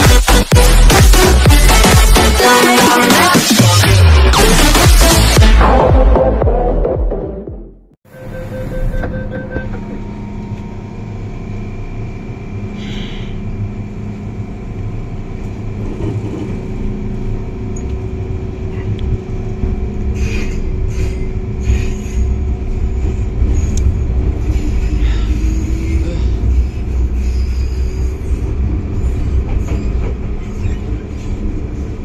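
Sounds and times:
train doors closing: 0:08.1 - 0:13.5, 0:15.4 - 0:32.0
train humming: 0:08.1 - 0:32.0
train rumble and motor whine: 0:08.1 - 0:32.0.

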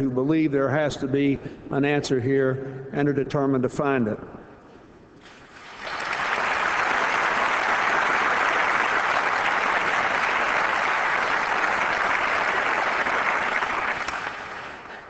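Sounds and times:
audience applauding: 0:05.4 - 0:15.0.

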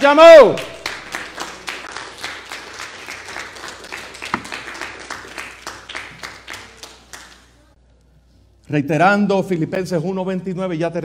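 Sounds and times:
people applauding: 0:00.6 - 0:07.6.

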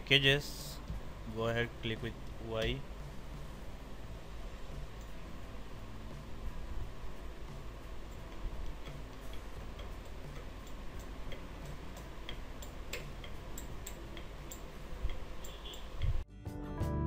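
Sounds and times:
low hum and hiss: 0:00.0 - 0:16.3
faint ticking clicks: 0:07.4 - 0:16.2.

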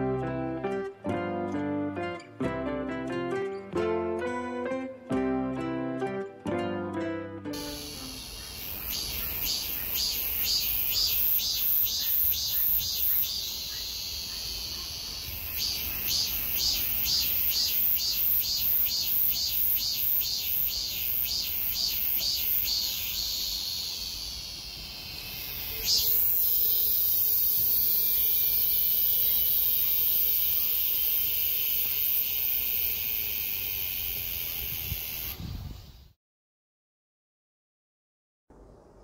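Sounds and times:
cicadas singing: 0:07.6 - 0:36.2.

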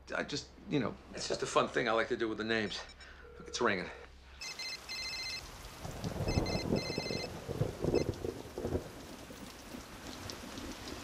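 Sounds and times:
low rumbling rain-like noise: 0:04.0 - 0:11.0
telephone ringing: 0:04.4 - 0:05.6, 0:06.2 - 0:08.1.

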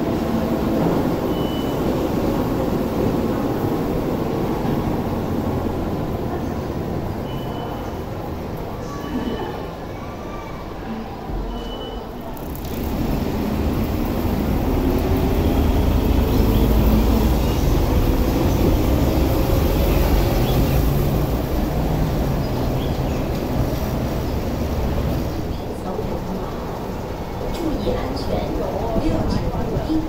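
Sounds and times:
funicular car rumbling on rails: 0:00.0 - 0:30.0.

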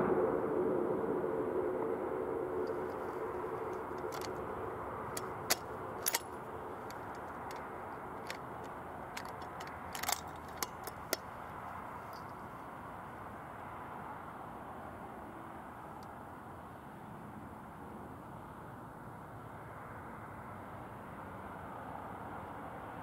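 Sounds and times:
short sharp clicks: 0:09.2 - 0:11.2.

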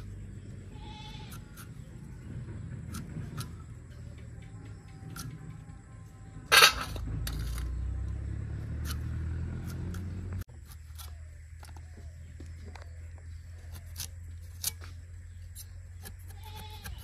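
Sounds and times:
blade cutting fruit clicks: 0:08.6 - 0:11.8.

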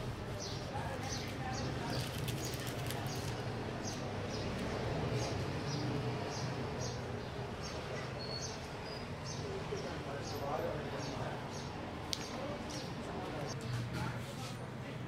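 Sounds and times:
paper and plastic rustling: 0:01.0 - 0:03.4.

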